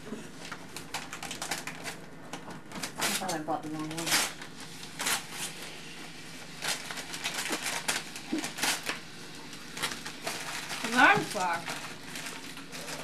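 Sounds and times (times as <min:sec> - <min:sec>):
wrapping paper tearing: 0:00.3 - 0:13.0.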